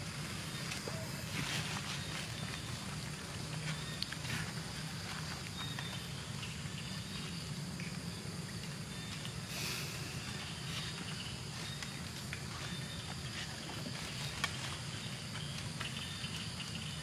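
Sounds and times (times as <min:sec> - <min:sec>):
faint chirps and clicks: 0:02.1 - 0:04.5, 0:05.2 - 0:13.4, 0:14.2 - 0:17.0.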